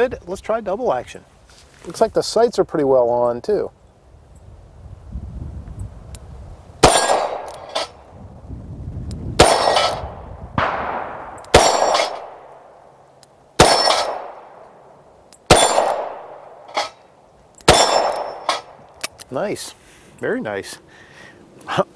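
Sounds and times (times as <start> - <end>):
revolver shots: 9.4 - 12.4.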